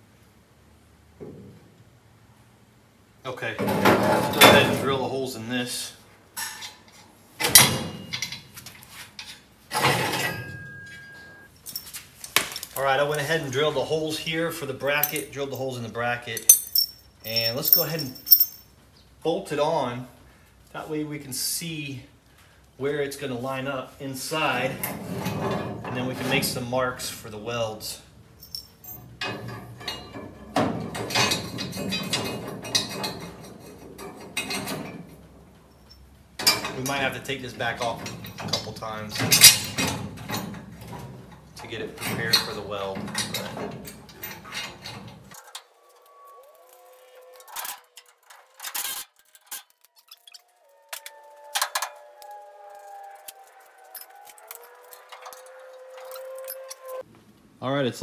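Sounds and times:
steel bracket clanking on metal: 9.2s - 10.9s, 14.9s - 18.6s, 28.4s - 46.1s, 53.9s - 57.0s
metallic ring: 10.0s - 11.9s, 16.4s - 18.7s, 28.4s - 30.4s, 50.0s - 57.0s
wrench clicking and clinking on metal: 14.9s - 15.7s, 16.3s - 18.7s, 28.4s - 30.2s.

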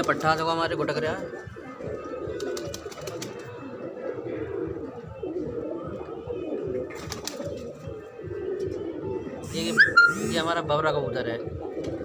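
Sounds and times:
pigeons cooing: 0.0s - 12.0s.

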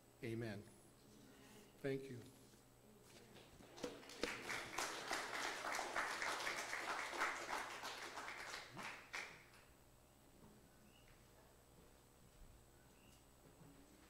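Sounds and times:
congregation applauding: 3.8s - 9.7s.

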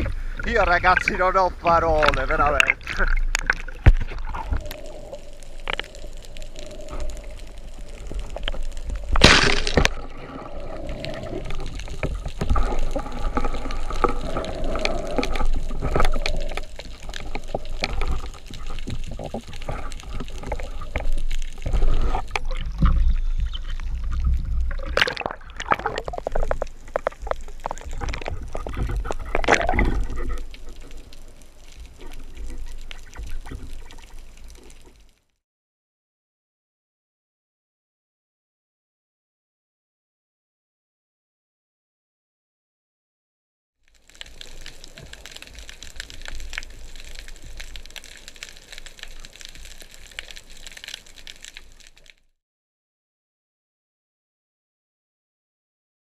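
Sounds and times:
underwater gurgling: 0.0s - 35.2s, 43.9s - 52.2s.

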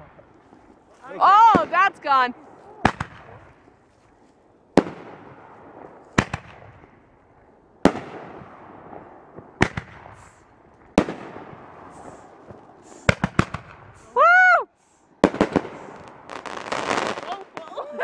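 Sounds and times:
firework shells bursting: 9.0s - 14.2s
hiss after firework bang: 11.9s - 14.2s.

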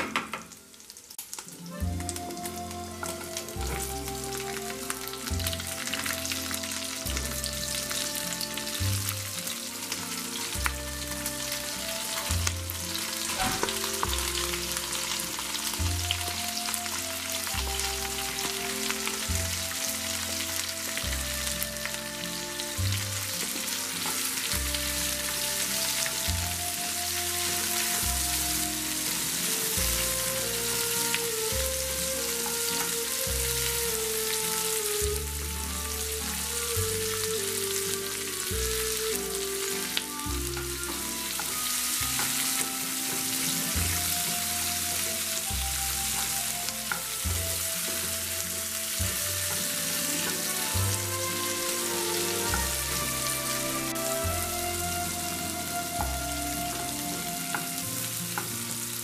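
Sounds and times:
vegetables sizzling in oil: 0.3s - 59.0s
background music with bass: 1.6s - 59.0s.

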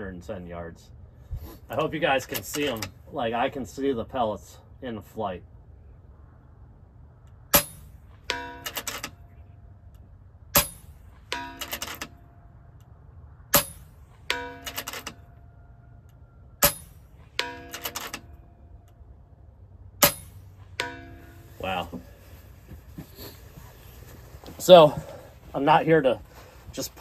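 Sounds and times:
air rifle shots: 7.5s - 9.2s, 13.5s - 15.2s, 16.6s - 18.2s, 20.0s - 20.8s.

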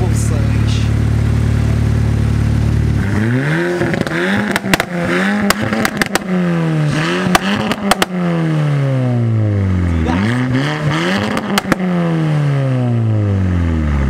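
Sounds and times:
car engine revving: 0.0s - 14.0s
sharp exhaust pops: 2.6s - 8.2s, 11.2s - 11.9s.

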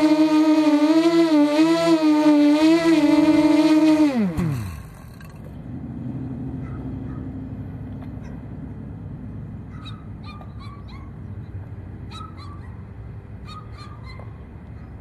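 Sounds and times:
drone motors whining down: 0.0s - 5.6s.

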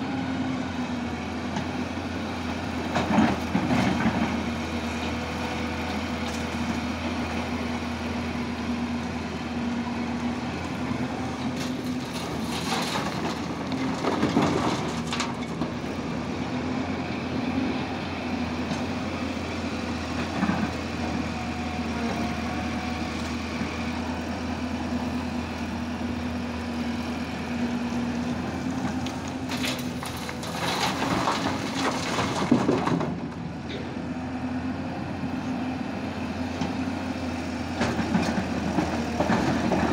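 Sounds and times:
excavator diesel engine running: 0.0s - 39.9s
earth and rock dumped into truck: 11.5s - 15.7s, 29.3s - 33.4s.

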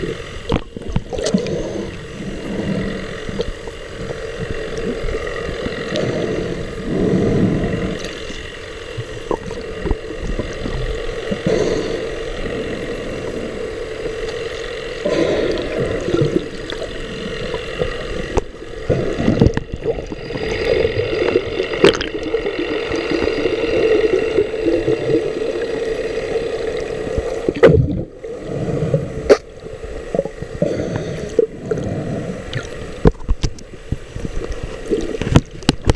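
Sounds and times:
underwater hum: 0.0s - 35.9s
water swirling and gurgling: 0.0s - 35.9s.

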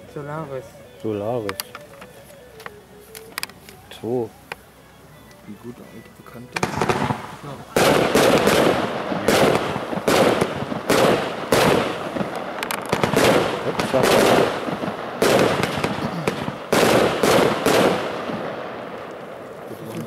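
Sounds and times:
firework cake shots with hiss: 6.5s - 20.0s.

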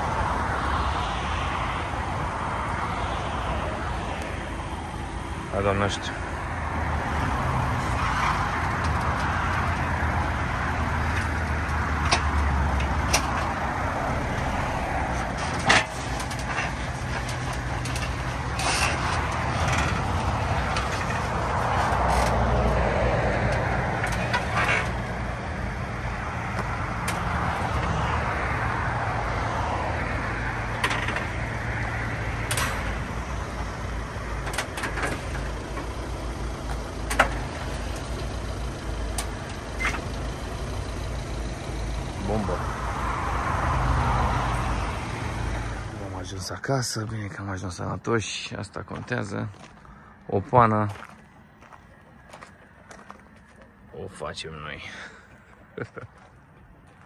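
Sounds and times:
car engine at low revs: 0.0s - 46.4s.

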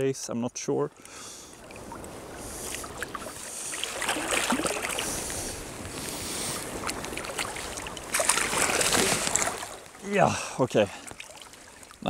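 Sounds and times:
fish thrashing in water: 1.6s - 5.5s, 6.8s - 10.0s.

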